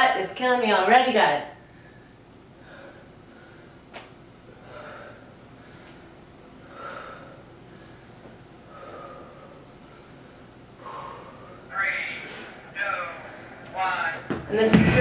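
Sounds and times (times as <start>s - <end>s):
woman breathing hard: 1.6s - 12.6s.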